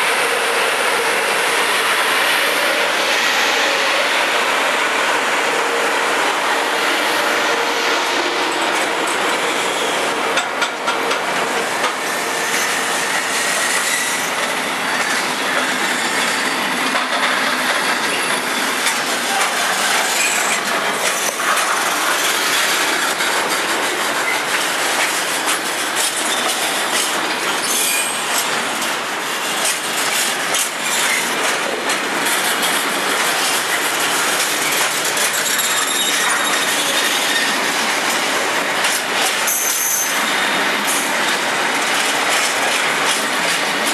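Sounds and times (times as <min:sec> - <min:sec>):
train wheels clattering on rails: 0:07.8 - 0:43.9
high wheel squeals: 0:13.4 - 0:14.4, 0:35.3 - 0:37.7, 0:39.5 - 0:40.6.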